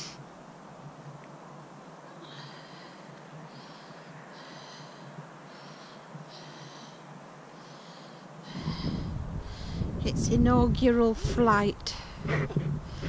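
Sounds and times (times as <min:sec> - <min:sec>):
steady background hiss: 0:00.0 - 0:13.0
low rumble: 0:08.5 - 0:13.0.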